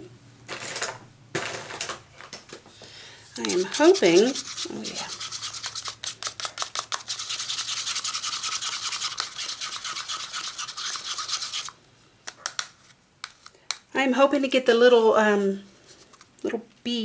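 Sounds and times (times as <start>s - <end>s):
rapid rubbing and scraping: 3.4s - 11.8s.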